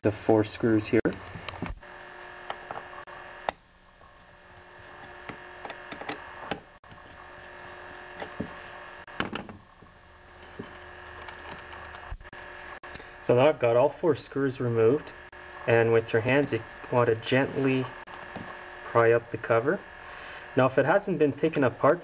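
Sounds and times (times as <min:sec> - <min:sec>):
faint steady hum: 0:00.0 - 0:22.0
screwdriver clicks and scrapes: 0:04.2 - 0:08.7, 0:10.4 - 0:12.1.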